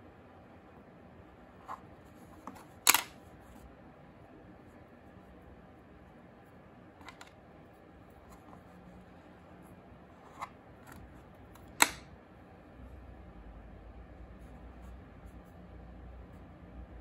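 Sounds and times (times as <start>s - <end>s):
faint room hiss: 0.0s - 17.0s.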